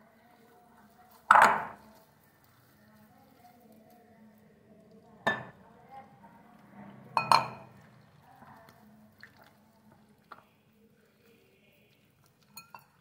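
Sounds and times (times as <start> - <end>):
batter mixed by hand: 0.0 - 13.0
clinks against glass bowl: 5.2 - 5.6, 7.2 - 7.7, 12.5 - 13.0
water pouring: 7.2 - 13.0.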